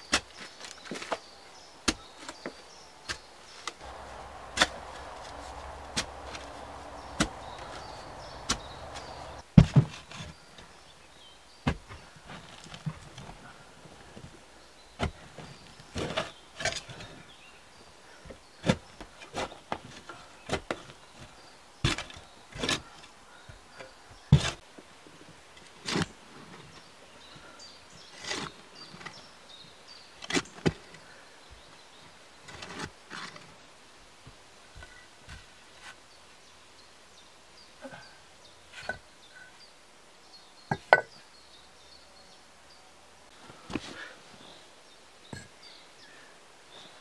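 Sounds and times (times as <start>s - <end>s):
tool scraping and knocking soil: 0.0s - 10.4s, 15.0s - 17.2s, 21.8s - 23.0s, 24.3s - 24.6s, 32.5s - 33.5s.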